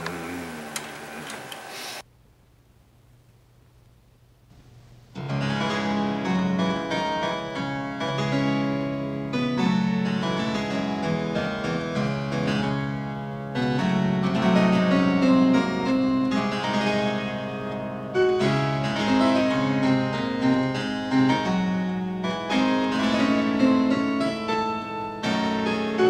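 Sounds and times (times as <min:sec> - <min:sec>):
classical keyboard music: 0:05.2 - 0:26.0.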